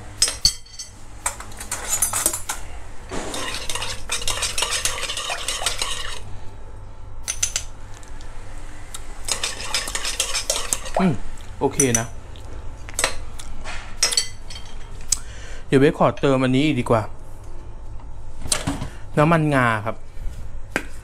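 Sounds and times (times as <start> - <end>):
low steady hum: 0.0 - 21.0
metal spoon stirring in glass bowl: 3.3 - 6.2, 9.3 - 11.0.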